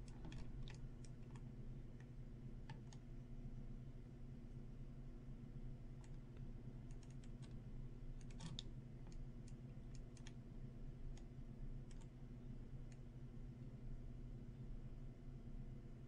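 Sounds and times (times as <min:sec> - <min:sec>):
mouse and keyboard clicking: 0:00.0 - 0:03.1, 0:06.0 - 0:07.6, 0:08.2 - 0:10.4, 0:11.1 - 0:12.2
low electrical hum: 0:00.0 - 0:16.0.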